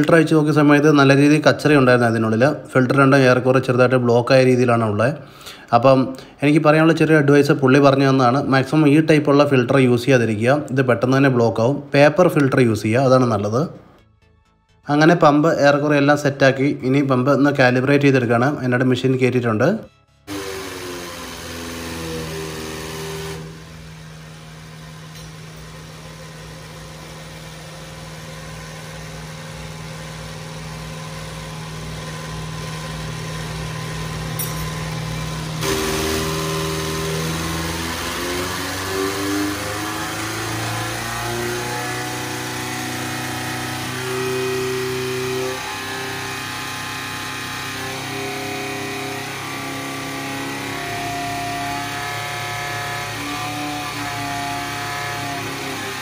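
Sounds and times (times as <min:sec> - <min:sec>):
test bench mechanical hum: 0:20.3 - 0:41.8.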